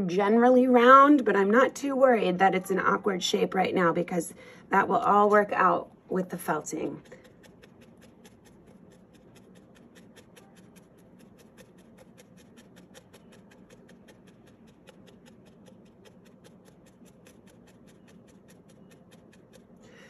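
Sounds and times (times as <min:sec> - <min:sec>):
felting needle poking wool: 0:05.0 - 0:20.0.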